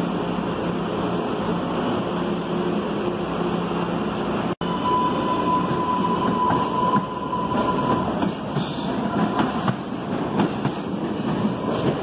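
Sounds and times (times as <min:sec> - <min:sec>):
subway train rumbling roar: 0:00.0 - 0:12.0
high-pitched wheel squeal: 0:04.6 - 0:08.3.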